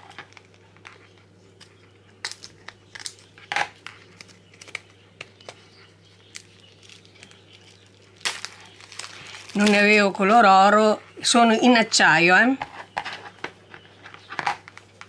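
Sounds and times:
plastic box clicks and crinkles: 6.2s - 9.9s.

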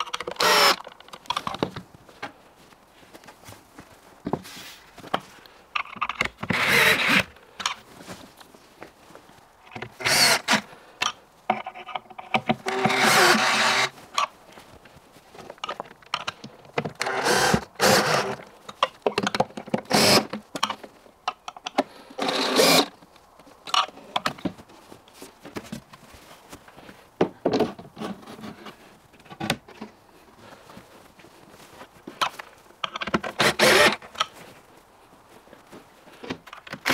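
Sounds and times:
cordless drill driving screws: 0.2s - 0.8s, 6.5s - 7.3s, 10.0s - 10.6s, 12.6s - 13.9s, 17.0s - 18.4s, 19.9s - 20.3s, 22.2s - 22.9s, 33.4s - 34.0s.

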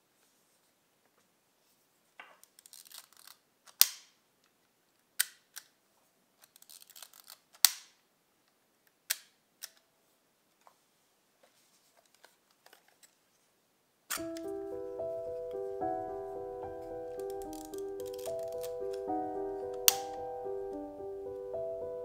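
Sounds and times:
film advance lever ratcheting: 17.2s - 19.0s.

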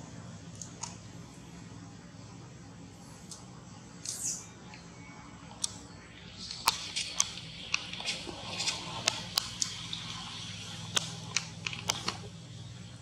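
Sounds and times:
steady low hum: 0.0s - 13.0s
monkey chewing crunchy fruit: 6.4s - 12.3s.

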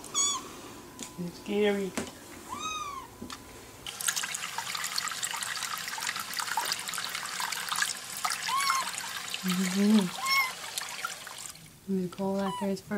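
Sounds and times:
tap water splashing into sink: 3.9s - 11.6s.

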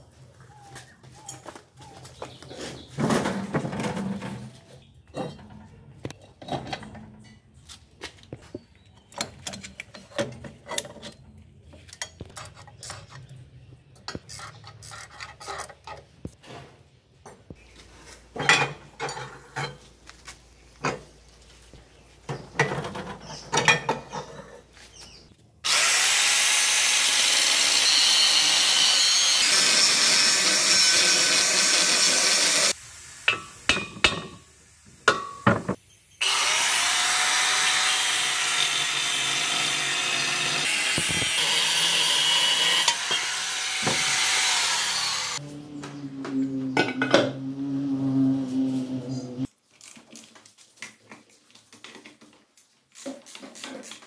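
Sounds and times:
electric grinder on steel: 25.6s - 32.8s, 36.2s - 45.6s, 47.3s - 49.5s.

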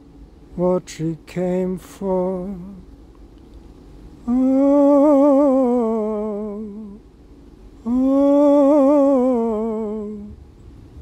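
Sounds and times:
person singing wordless notes: 4.2s - 7.0s, 7.8s - 10.4s.

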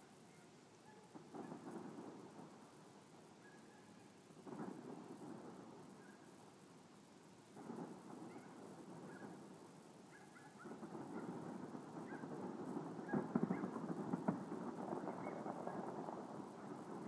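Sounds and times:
distant fireworks crackling: 0.0s - 17.0s
sharp firework pops: 1.1s - 2.6s, 4.4s - 6.2s, 7.6s - 9.5s, 10.1s - 17.0s.

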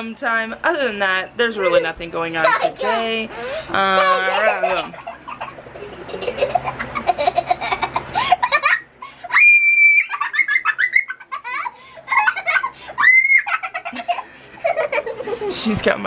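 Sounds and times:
toddler giggling: 3.9s - 15.5s
toddler high-pitched squeal: 9.3s - 10.3s.

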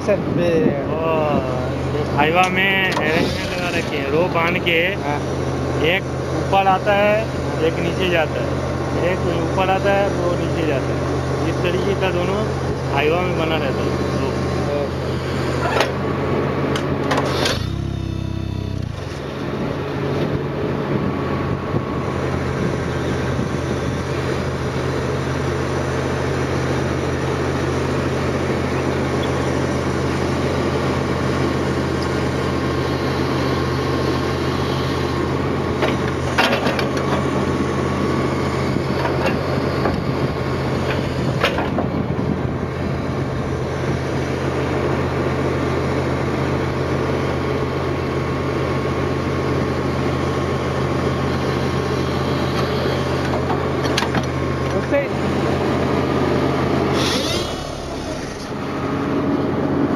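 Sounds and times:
diesel engine running: 0.0s - 59.9s
plate compactor on gravel: 2.9s - 4.3s, 15.0s - 20.4s, 56.8s - 59.1s.

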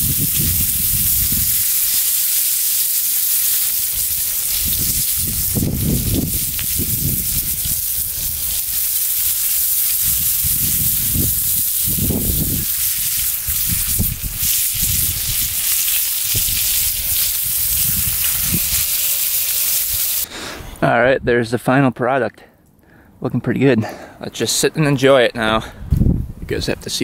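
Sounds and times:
meat sizzling in a skillet: 0.0s - 20.3s.

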